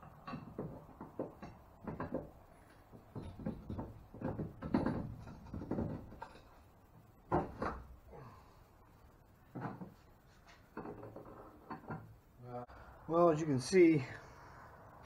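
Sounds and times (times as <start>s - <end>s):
knocks clicks and scrapes: 0.0s - 6.7s, 9.5s - 12.2s.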